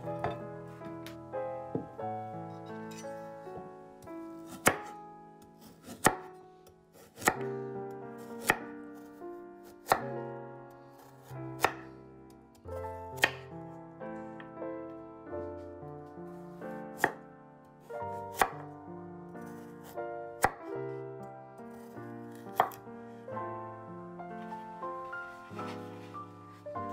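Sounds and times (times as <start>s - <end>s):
soft background music: 0.0s - 26.9s
knife slicing carrot on wooden board: 4.4s - 6.3s, 7.0s - 7.5s, 8.2s - 10.1s, 11.0s - 11.9s, 12.8s - 13.4s, 17.0s - 17.2s, 18.3s - 18.6s, 19.5s - 20.6s, 21.7s - 22.8s.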